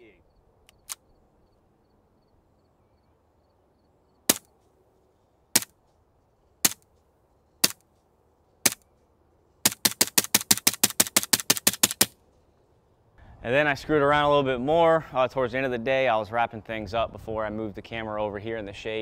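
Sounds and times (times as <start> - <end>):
suppressed pistol shots: 4.3 - 4.5.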